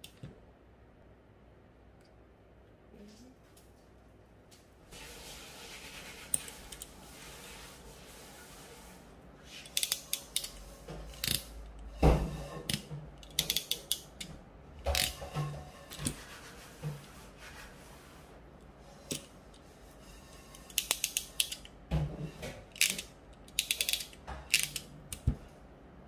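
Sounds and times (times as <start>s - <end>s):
crimping pliers clicking: 22.7s - 25.3s.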